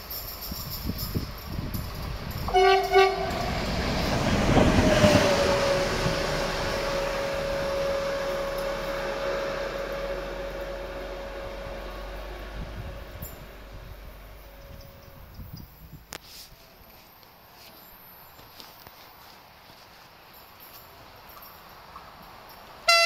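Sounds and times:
steady locomotive tone: 0:00.0 - 0:18.4, 0:20.2 - 0:23.0
locomotive wheel and engine noise: 0:00.0 - 0:23.0
locomotive horn blasts: 0:02.5 - 0:15.4.

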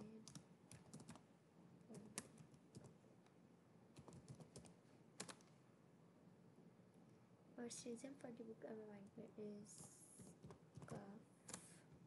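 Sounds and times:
faint computer keyboard typing: 0:00.0 - 0:01.2, 0:01.9 - 0:03.0, 0:03.9 - 0:05.5, 0:09.0 - 0:12.0.

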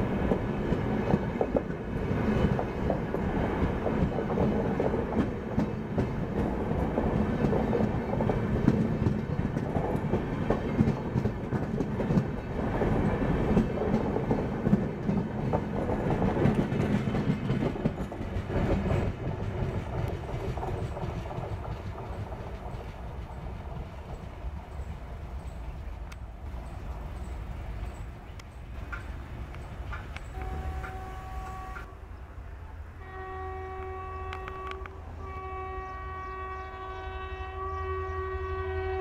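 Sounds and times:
train wheels rumbling on rail: 0:00.0 - 0:39.0
wheels clattering over rail joints: 0:00.2 - 0:25.8.

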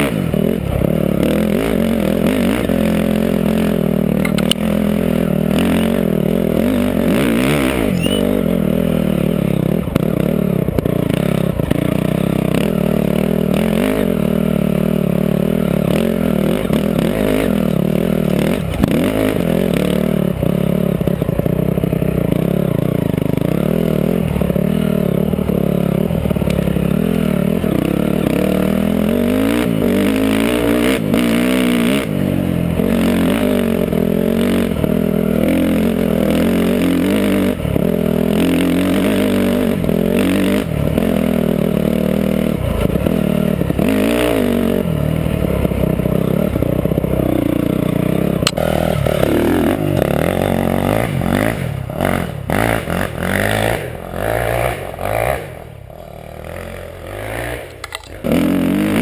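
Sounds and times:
dirt bike engine revving: 0:00.0 - 0:59.0
rattling and scraping: 0:57.7 - 0:58.4.

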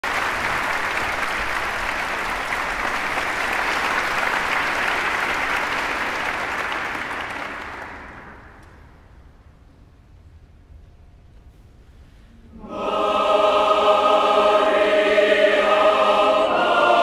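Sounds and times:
large audience applauding: 0:00.0 - 0:08.6.

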